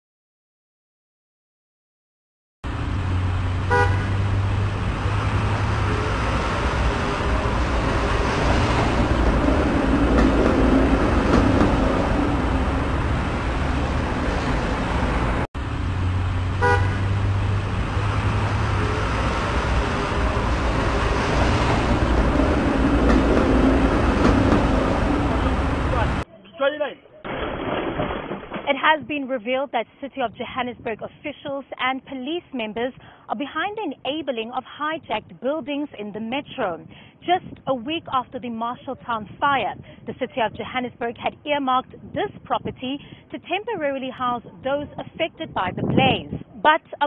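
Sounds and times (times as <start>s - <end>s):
street traffic noise: 2.6s - 26.3s, 29.5s - 47.0s
car horn tooting: 3.7s - 4.3s, 16.6s - 17.2s.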